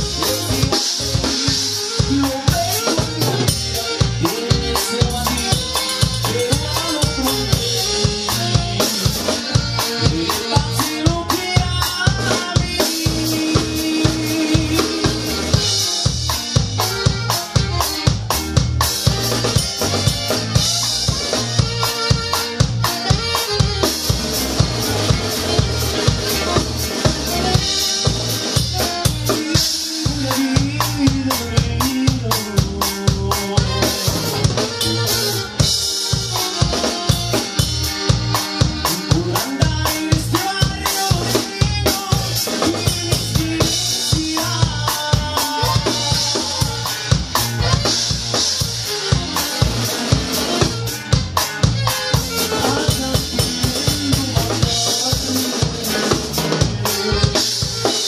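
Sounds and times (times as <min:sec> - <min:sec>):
drum kit beat: 0:00.0 - 0:58.0
melodic instruments playing: 0:00.0 - 0:58.0.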